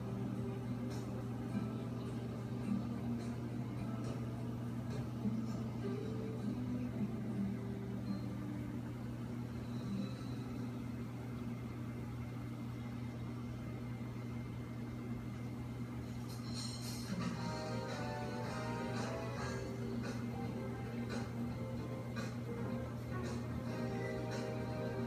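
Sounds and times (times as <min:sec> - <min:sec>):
aquarium pumps humming: 0:00.0 - 0:25.0.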